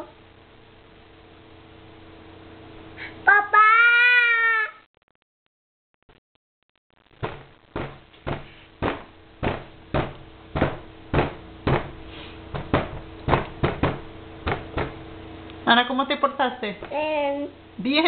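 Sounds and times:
faint steady hum: 0.0 - 4.8, 7.0 - 18.0
knocking on a high-chair tray: 7.2 - 11.9, 12.6 - 15.0.

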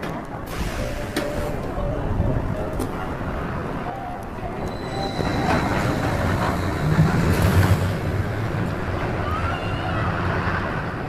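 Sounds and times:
roller coaster train rumbling on track: 0.0 - 11.0.

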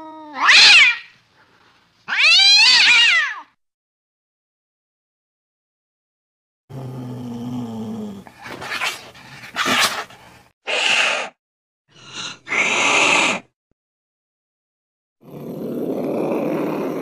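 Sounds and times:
cat growling: 6.7 - 9.9, 15.2 - 17.0
cat hissing: 8.2 - 11.4, 12.0 - 13.5.

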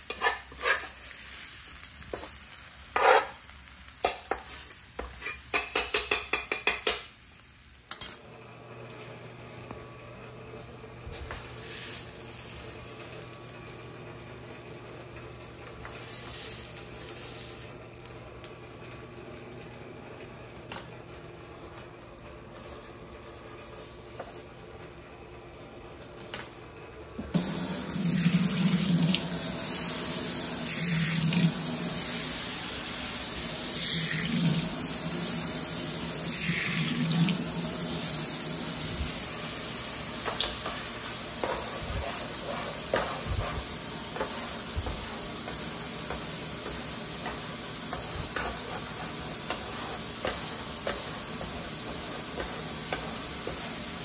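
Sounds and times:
water running into sink: 27.4 - 32.3, 33.4 - 39.2.

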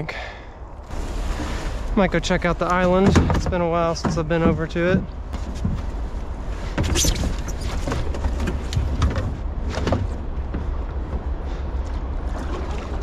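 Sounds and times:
steady low rumble: 0.0 - 13.0
kayak hull scraping on mud: 0.9 - 9.0
water sloshing from paddling: 0.9 - 9.5, 12.0 - 13.0.

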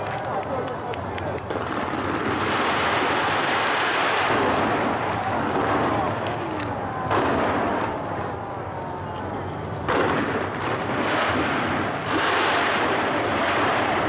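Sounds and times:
fireworks bursting and crackling: 0.0 - 14.0.

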